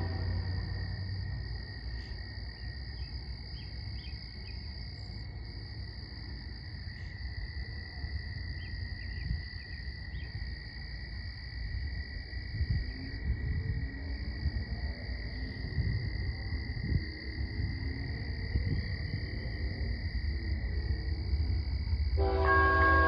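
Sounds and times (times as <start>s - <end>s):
low rumble: 0.0s - 2.3s.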